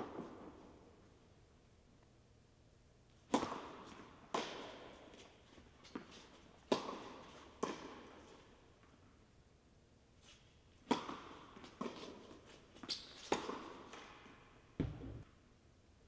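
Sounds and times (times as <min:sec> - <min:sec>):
ball bouncing on hard court: 0:03.3 - 0:05.0, 0:06.7 - 0:08.1, 0:10.9 - 0:12.2, 0:12.8 - 0:14.2, 0:14.8 - 0:15.2
tennis balls struck by racquets: 0:03.3 - 0:05.3, 0:05.9 - 0:08.5, 0:10.8 - 0:15.2.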